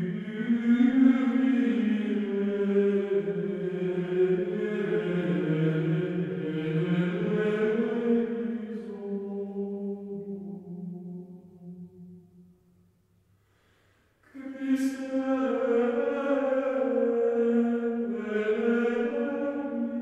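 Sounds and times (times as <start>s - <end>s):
slow vocal chant: 0.0s - 12.2s, 14.2s - 20.0s.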